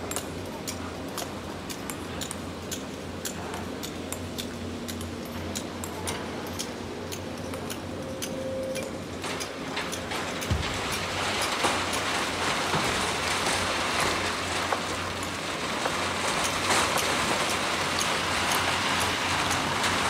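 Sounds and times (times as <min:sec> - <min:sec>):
rock and sand pouring into truck: 0:10.5 - 0:20.0.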